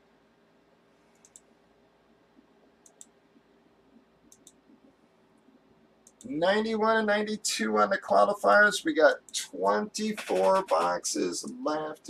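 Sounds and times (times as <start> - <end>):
computer mouse clicks: 1.1 - 1.5, 2.4 - 3.2, 4.2 - 4.8, 6.0 - 6.3.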